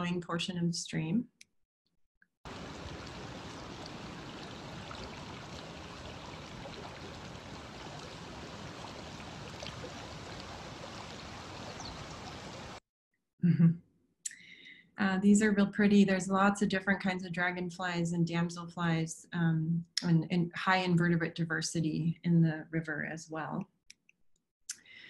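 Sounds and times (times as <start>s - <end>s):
stream rushing over rocks: 2.5s - 12.8s.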